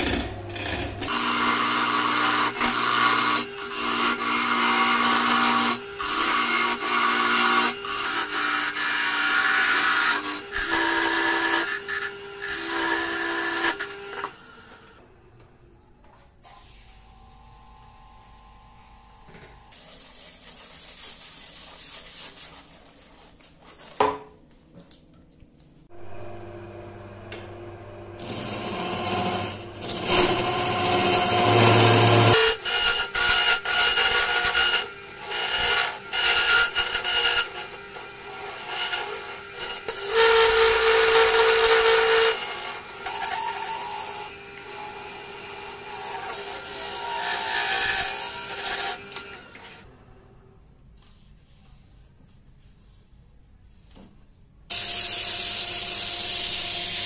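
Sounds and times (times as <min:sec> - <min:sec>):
gouge cutting wood on lathe: 0:00.0 - 0:14.3, 0:28.2 - 0:49.5.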